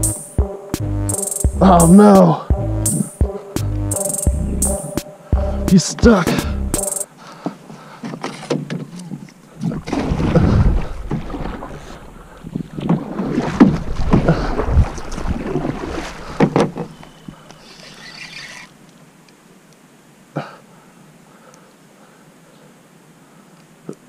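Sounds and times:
water splashing around a canoe: 0:07.5 - 0:19.0
fish thrashing at surface: 0:09.6 - 0:12.0.

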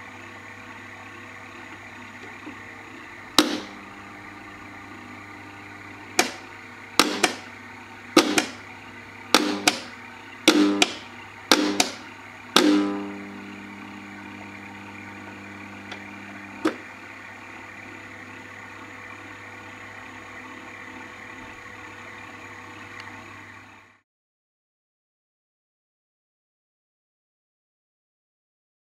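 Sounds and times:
clockwork mechanism humming: 0:00.0 - 0:24.0
hammers clanking on metal anvil: 0:09.4 - 0:09.9, 0:10.5 - 0:12.0, 0:12.6 - 0:13.1.

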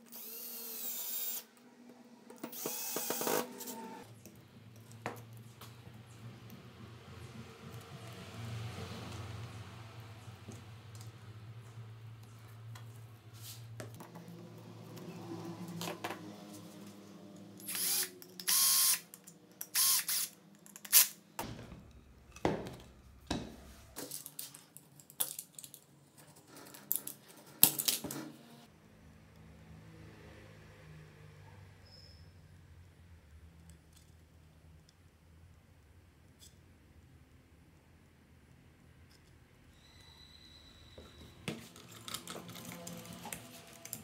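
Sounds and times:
cordless drill driving screws: 0:00.0 - 0:01.5, 0:02.4 - 0:04.0, 0:17.6 - 0:19.0, 0:19.7 - 0:21.1.

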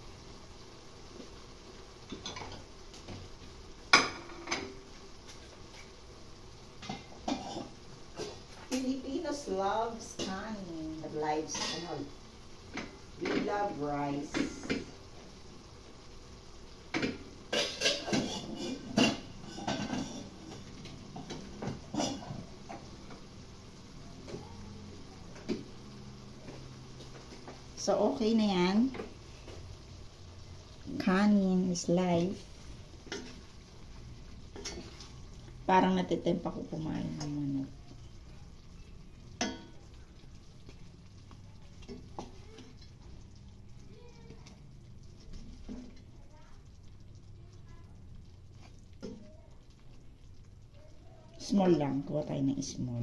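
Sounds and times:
wooden spatula stirring in pan: 0:00.0 - 0:53.0
dishes and utensils clinking: 0:16.9 - 0:22.8.

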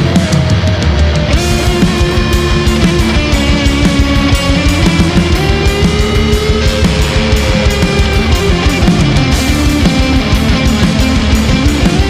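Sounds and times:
distorted electric guitar: 0:00.0 - 0:12.0
steady drum beat: 0:00.0 - 0:12.0.

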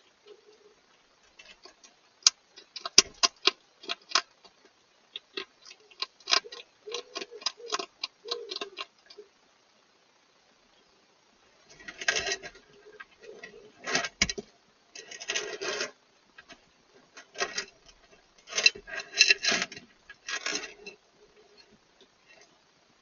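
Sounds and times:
hedgehog crunchy chewing: 0:01.2 - 0:09.2.

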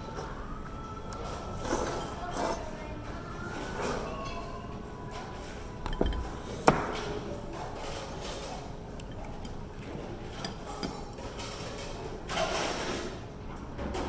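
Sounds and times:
chopsticks and tableware clinking: 0:05.8 - 0:06.7, 0:07.8 - 0:11.9.

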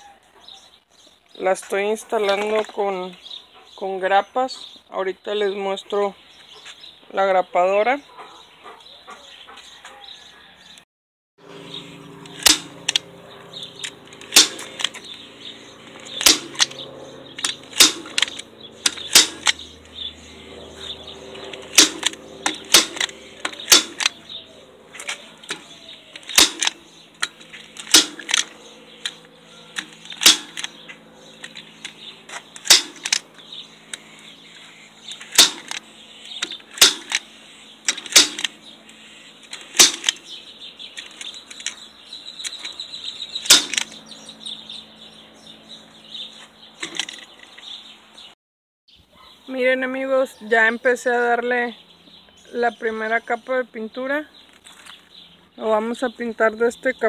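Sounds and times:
staple gun snaps: 0:26.2 - 0:26.8.

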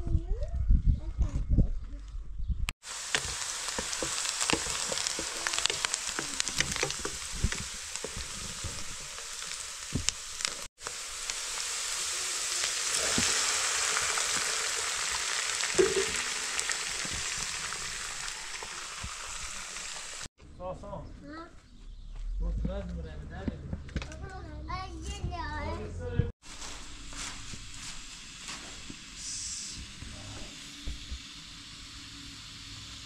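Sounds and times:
food sizzling in oil: 0:02.8 - 0:20.3, 0:26.4 - 0:33.0.

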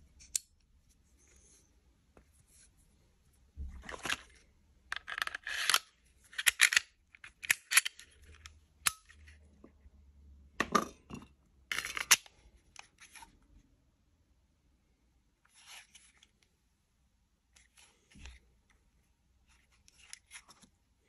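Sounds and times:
pistol slide scraping and clicking: 0:04.9 - 0:09.2.

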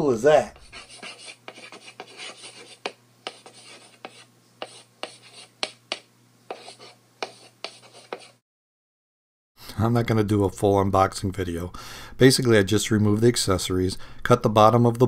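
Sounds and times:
chalk scratching on blackboard: 0:00.6 - 0:08.4.

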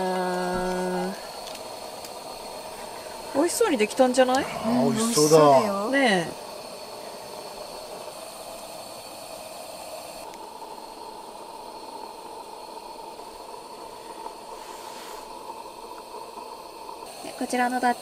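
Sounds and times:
steady hissing noise: 0:00.0 - 0:18.0.

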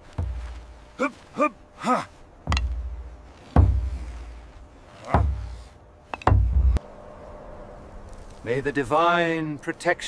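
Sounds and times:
deep booming hits: 0:06.3 - 0:06.8.

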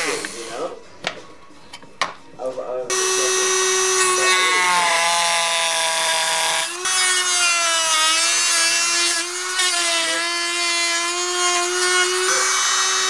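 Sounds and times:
rotary tool motor whine: 0:02.9 - 0:13.0.

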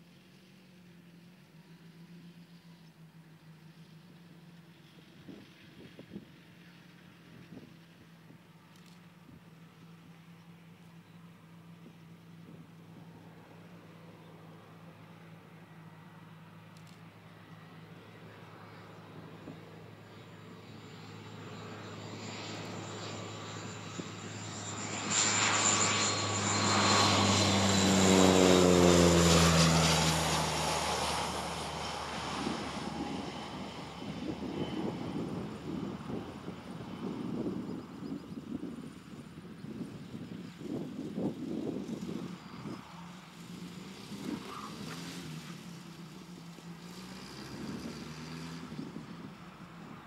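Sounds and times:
faint outdoor background noise: 0:00.0 - 0:50.0
turboprop plane engines droning: 0:00.0 - 0:50.0.

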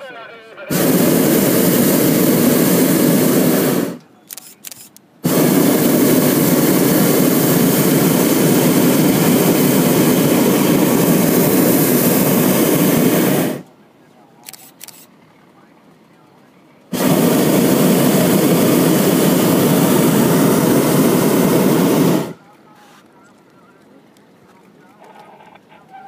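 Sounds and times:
propane burner blasting: 0:00.6 - 0:04.0, 0:05.2 - 0:13.7, 0:16.9 - 0:23.1.

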